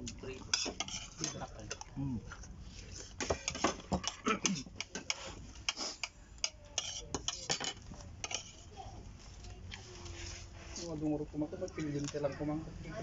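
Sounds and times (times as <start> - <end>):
cutlery clinking on plates: 3.2 - 8.6.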